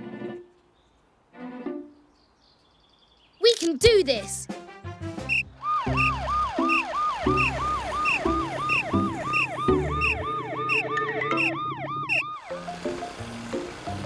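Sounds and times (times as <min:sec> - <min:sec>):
background music: 0:00.0 - 0:00.5, 0:01.3 - 0:02.1, 0:03.5 - 0:14.0
cartoon siren yelping: 0:05.6 - 0:12.6.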